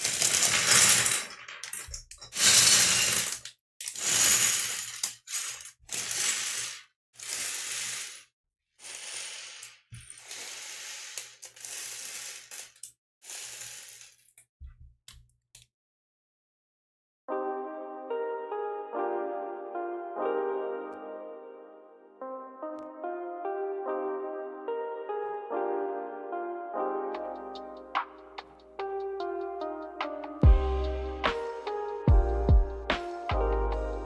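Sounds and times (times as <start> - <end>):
plastic pieces clattering on wood: 0.0 - 8.2.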